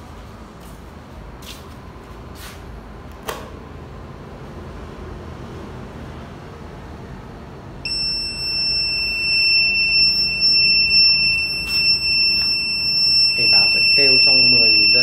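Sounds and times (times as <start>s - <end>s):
shrill alarm buzzer: 7.9s - 15.0s.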